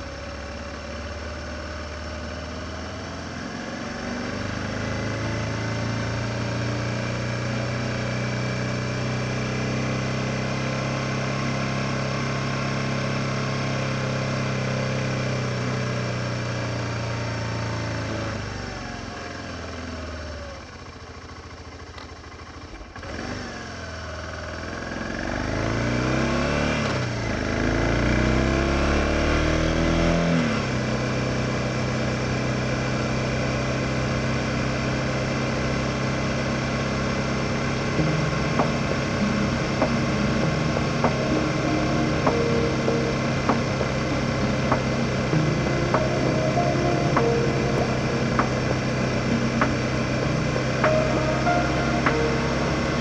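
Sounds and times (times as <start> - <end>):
motorcycle engine running: 31.2 - 53.0.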